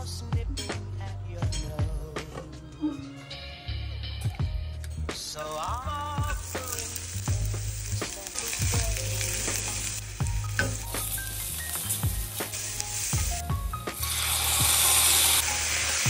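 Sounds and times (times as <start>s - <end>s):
onions sizzling in hot oil: 5.4s - 16.0s.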